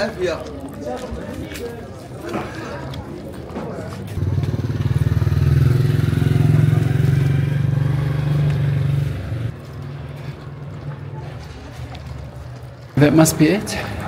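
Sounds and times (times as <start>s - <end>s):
small motorcycle passing: 4.2s - 10.7s.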